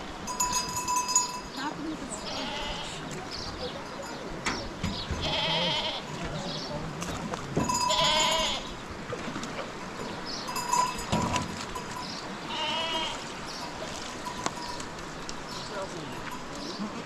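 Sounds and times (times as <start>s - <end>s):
sheep and goats bleating: 0.0s - 3.2s, 5.2s - 6.7s, 7.6s - 8.8s, 11.8s - 17.0s.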